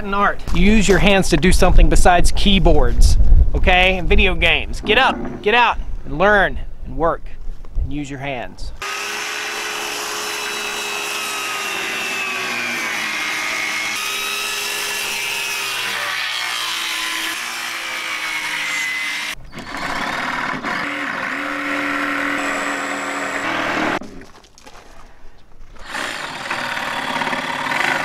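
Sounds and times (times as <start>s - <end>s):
circular saw cutting wood: 8.8s - 24.0s, 25.8s - 28.0s.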